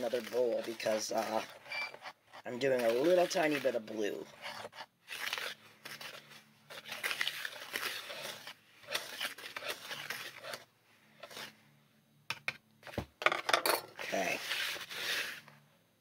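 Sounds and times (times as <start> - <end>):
hands mixing powder in a bowl: 0.0 - 11.6.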